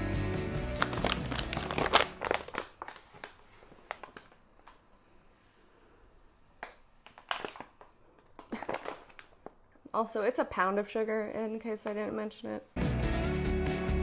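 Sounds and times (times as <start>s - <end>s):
paper bag crinkling: 0.7s - 4.8s, 7.0s - 9.5s.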